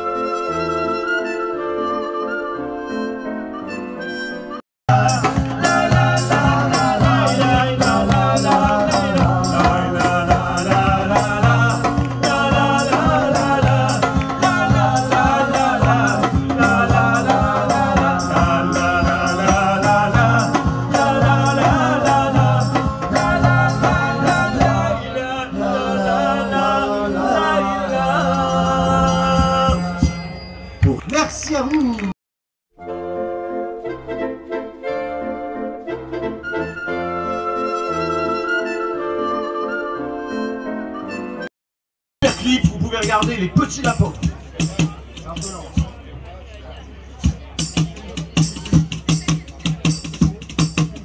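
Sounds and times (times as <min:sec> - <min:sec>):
rattling hand percussion: 0:04.9 - 0:24.8, 0:42.2 - 0:46.1, 0:47.2 - 0:51.0
acoustic guitar: 0:04.9 - 0:25.0
man singing: 0:04.9 - 0:30.2.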